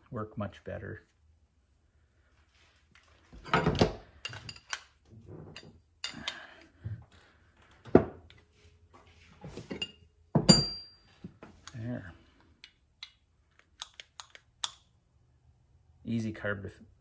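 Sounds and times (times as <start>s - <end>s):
metal parts and tools clinking: 3.4s - 6.6s, 9.6s - 11.8s.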